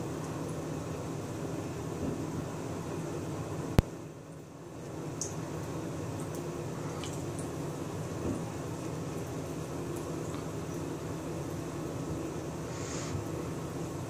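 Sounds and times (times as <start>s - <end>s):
faint ticks and splashes: 3.8s - 12.6s.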